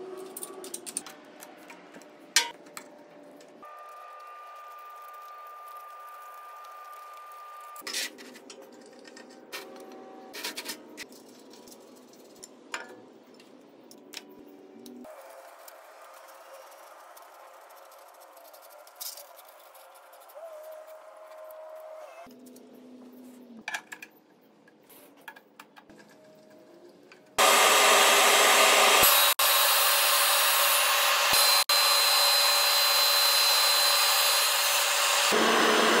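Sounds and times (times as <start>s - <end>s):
drum sander running: 27.4s - 36.0s.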